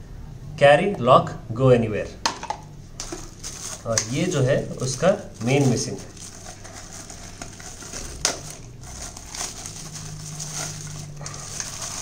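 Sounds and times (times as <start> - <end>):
plastic bag crinkling: 3.0 - 12.0.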